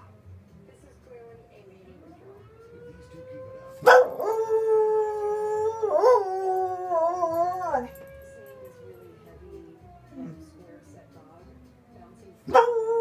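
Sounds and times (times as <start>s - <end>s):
dog howling: 2.8s - 10.6s, 12.5s - 13.0s.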